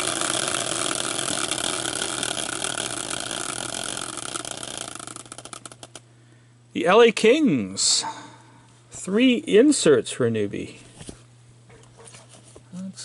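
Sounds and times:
wheel ticking: 0.0 - 6.0
spinning wheel rattling whir: 0.0 - 6.1.

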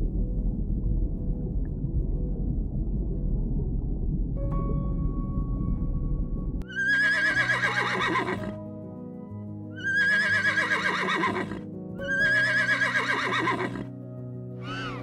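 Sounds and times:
background music: 0.0 - 15.0
zebra calling: 14.6 - 15.0.

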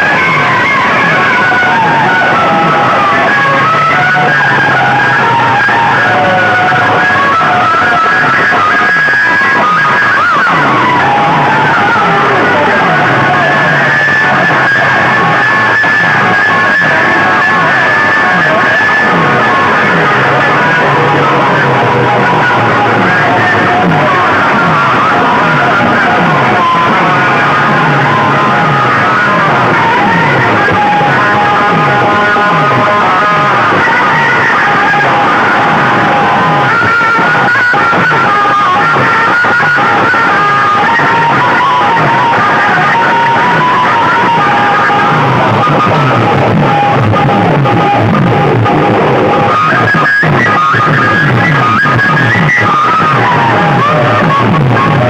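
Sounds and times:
loud music from horn loudspeakers: 0.0 - 55.0
falling bass sweep: 9.8 - 36.7.

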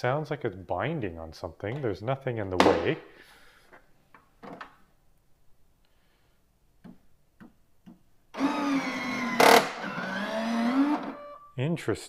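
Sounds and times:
small electric motor whine: 8.4 - 11.4.

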